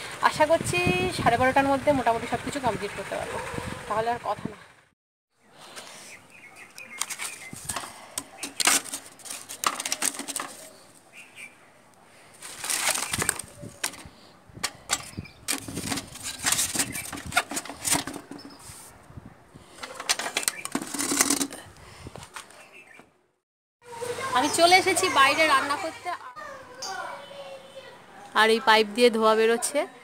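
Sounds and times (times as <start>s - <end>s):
firewood sticks clattering: 6.8s - 10.8s, 12.4s - 18.5s, 19.6s - 21.6s.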